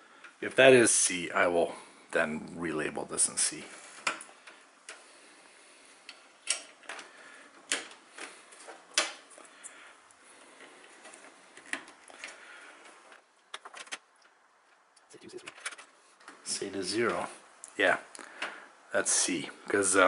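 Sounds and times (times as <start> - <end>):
faint hiss: 0.0 - 20.0
plastic connectors clicking: 6.0 - 9.5.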